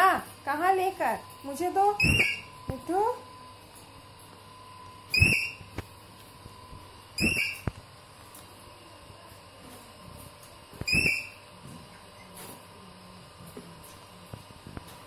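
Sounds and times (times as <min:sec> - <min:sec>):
parakeet screeching: 0:02.0 - 0:02.5, 0:05.1 - 0:05.6, 0:07.2 - 0:07.6, 0:10.8 - 0:11.4.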